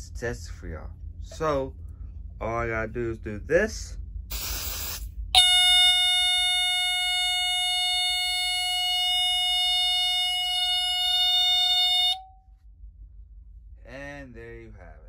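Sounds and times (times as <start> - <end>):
aerosol spray: 4.3 - 5.1
smoke alarm tone: 5.4 - 12.5.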